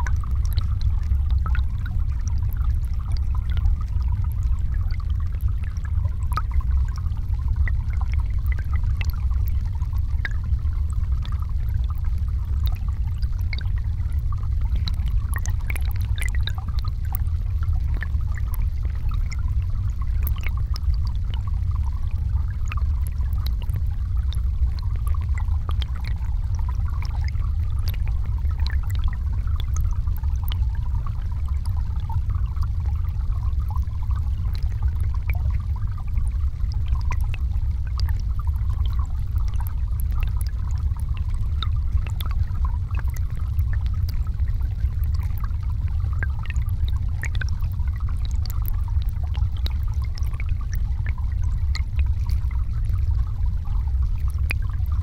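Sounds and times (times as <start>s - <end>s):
small underwater clicks: 0.0s - 55.0s
underwater river rumble: 0.0s - 55.0s.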